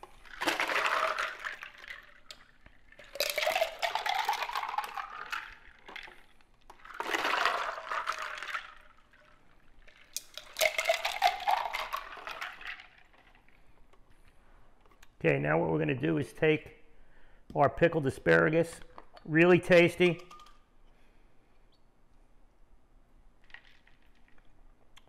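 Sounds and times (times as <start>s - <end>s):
ice clicking and rattling: 0.0s - 13.7s, 23.4s - 24.5s
drink pouring between cups: 0.0s - 14.3s.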